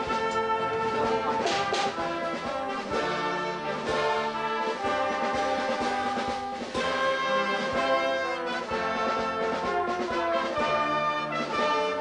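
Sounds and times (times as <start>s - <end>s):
brass band chords: 0.0s - 12.0s.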